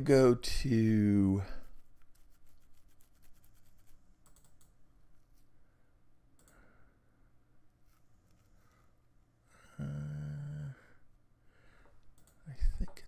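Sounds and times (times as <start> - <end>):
computer mouse clicks: 4.2 - 4.8, 6.4 - 6.6, 12.0 - 13.0.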